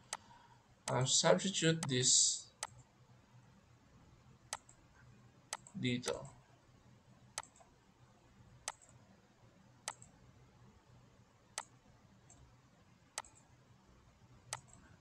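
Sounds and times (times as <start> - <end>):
faint low hum: 0.0 - 15.0
computer mouse clicking: 2.6 - 2.9, 4.5 - 4.8, 5.5 - 6.3, 7.4 - 7.7, 8.6 - 9.0, 9.8 - 10.2, 13.2 - 13.5, 14.5 - 14.9.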